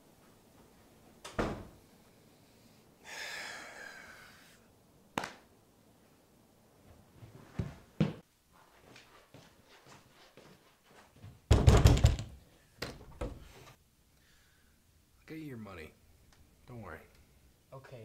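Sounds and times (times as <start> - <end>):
breathy noise: 1.9 - 4.7.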